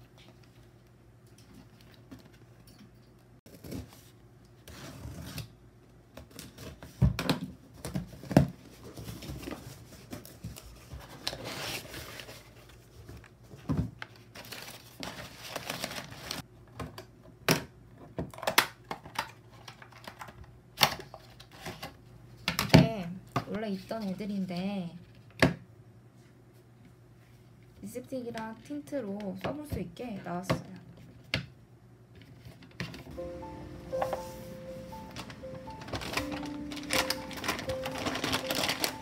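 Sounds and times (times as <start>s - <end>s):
packing paper rustling: 8.1s - 16.4s, 33.2s - 39.0s.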